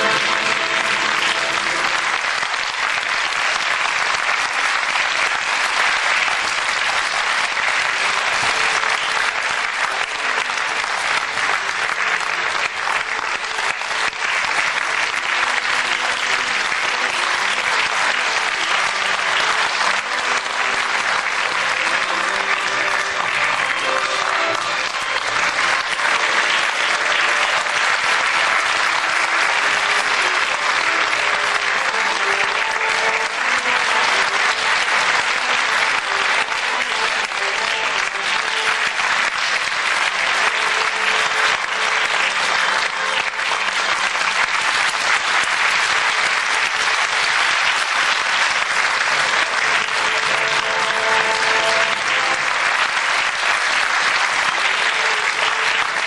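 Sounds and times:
audience applauding: 0:00.0 - 0:56.0.

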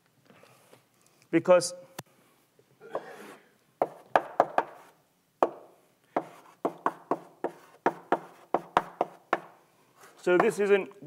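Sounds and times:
chalk tapping and scraping: 0:03.0 - 0:05.0, 0:06.1 - 0:10.7.

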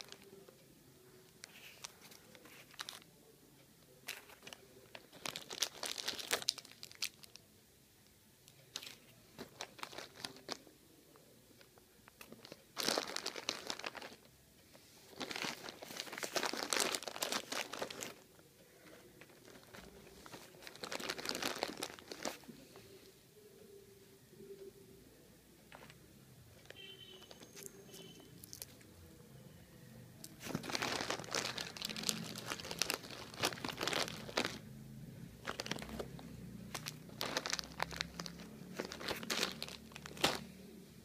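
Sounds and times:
plastic wrappers crinkling: 0:00.0 - 0:00.6, 0:01.3 - 0:03.1, 0:04.0 - 0:07.4, 0:08.5 - 0:10.7, 0:11.6 - 0:14.3, 0:15.0 - 0:22.5, 0:26.6 - 0:28.8, 0:30.2 - 0:40.7.

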